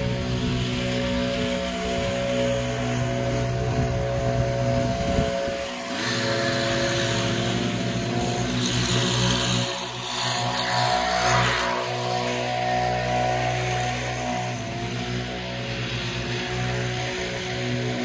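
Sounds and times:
leaf blower engine running: 0.0 - 18.0.

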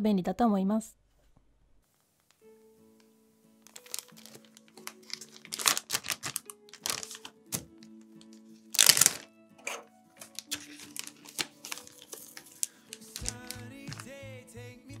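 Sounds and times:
background music with held notes: 2.4 - 15.0
crinkling and rustling in kitchen: 3.6 - 14.2.

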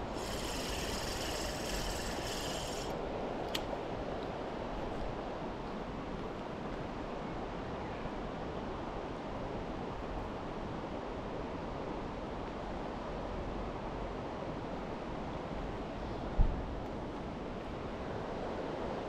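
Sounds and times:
river water flowing: 0.0 - 2.9.

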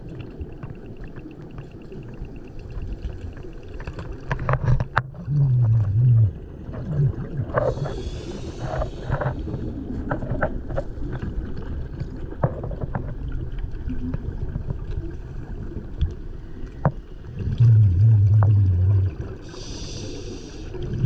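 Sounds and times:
sharp clicks and crackles: 0.0 - 5.8
low underwater rumble: 0.0 - 21.0
low hum: 5.2 - 21.0.

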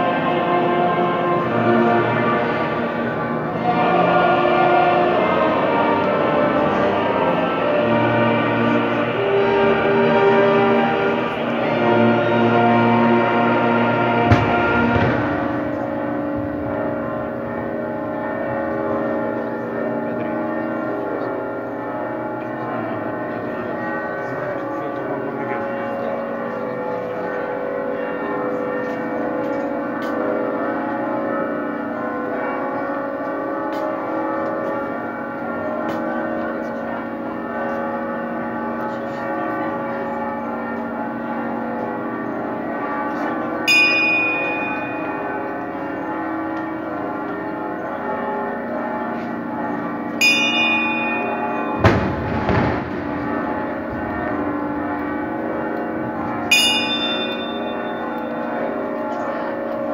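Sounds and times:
church bells pealing: 0.0 - 59.9
dull bang: 14.2 - 17.4, 51.8 - 54.5
small bright bell ringing: 50.2 - 51.8, 56.5 - 58.4.

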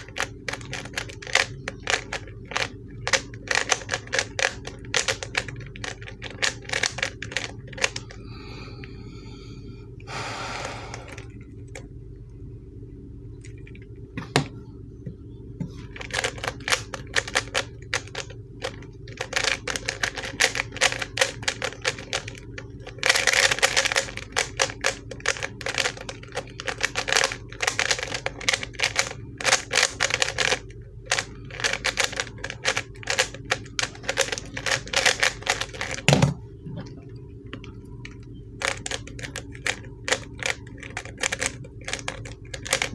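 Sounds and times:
speed cube clicking: 0.0 - 8.1, 16.0 - 36.1, 38.0 - 42.9.

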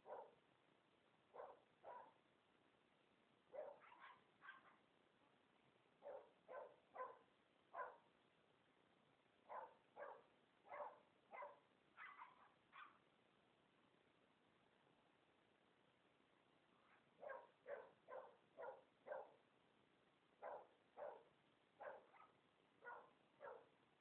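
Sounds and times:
dogs barking in play: 0.0 - 0.4, 1.3 - 2.2, 3.5 - 4.9, 6.0 - 8.1, 9.4 - 13.0, 16.8 - 19.4, 20.4 - 23.8.

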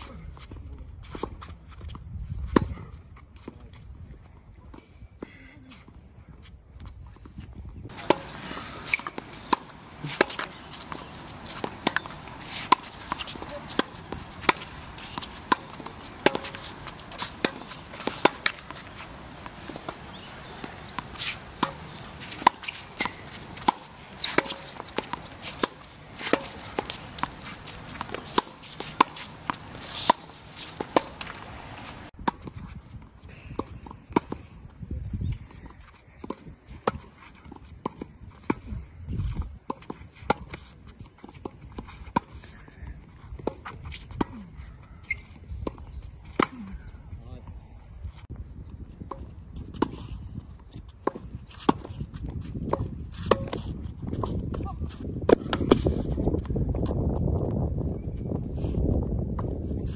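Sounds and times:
ball bouncing: 7.9 - 32.1
rackets striking tennis ball: 7.9 - 32.5
footsteps on court: 7.9 - 32.8.

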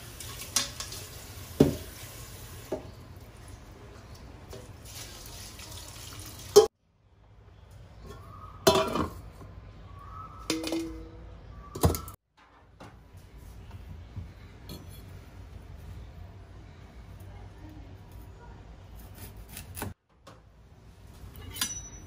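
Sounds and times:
metal cookware clanking: 8.1 - 9.2, 21.3 - 22.0.

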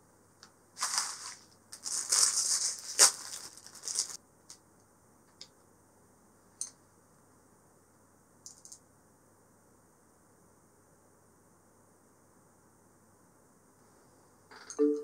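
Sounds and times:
plastic bag crinkling: 0.8 - 4.2.

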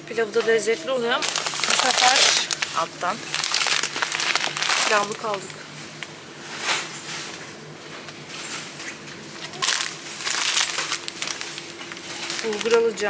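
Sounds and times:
plastic packet crinkling: 1.1 - 6.2, 8.9 - 13.0.

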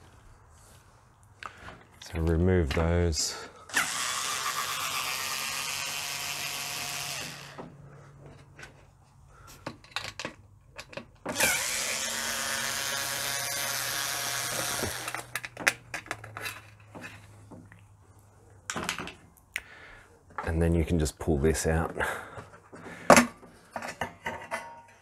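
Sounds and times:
screws and tool clicking: 3.7 - 7.6, 10.8 - 16.6
power drill motor running: 3.7 - 7.7, 11.3 - 15.3.

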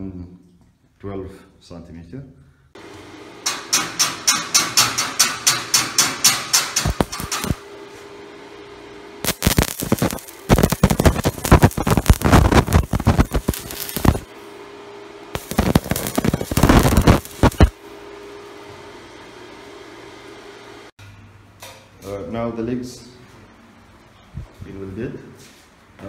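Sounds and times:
welding arc crackling: 6.6 - 7.6, 9.2 - 14.3, 15.3 - 17.8.

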